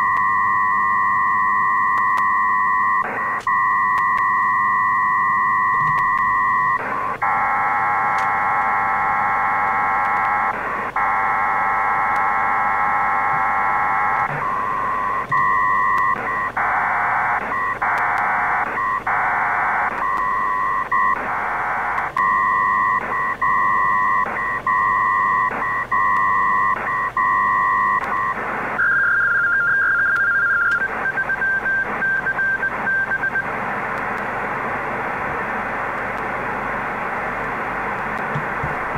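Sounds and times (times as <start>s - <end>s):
radio data tones: 0.0s - 38.9s
radio band hiss: 6.8s - 22.2s, 27.8s - 28.8s, 30.8s - 38.9s.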